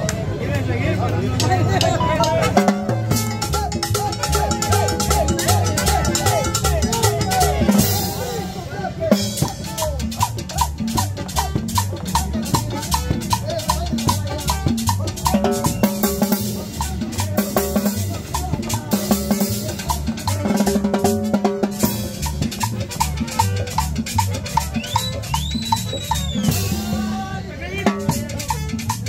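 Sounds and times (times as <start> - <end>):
snare and bass drum beat: 1.4 - 8.4, 9.1 - 27.3
live band playing dance music: 1.4 - 29.0
high whistle-like note: 24.6 - 26.9.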